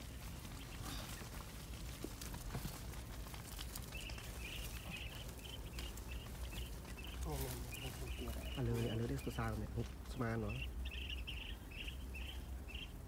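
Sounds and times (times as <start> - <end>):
high chirping: 3.8 - 13.0.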